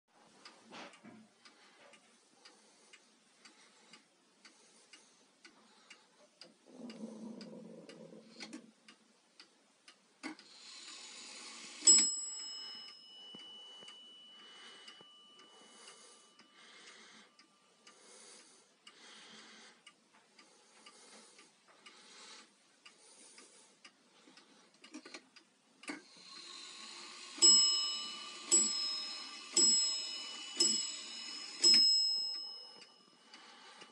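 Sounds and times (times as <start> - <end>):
wall clock ticking: 0.1 - 33.9
clock bell striking: 11.8 - 15.8, 27.2 - 33.2.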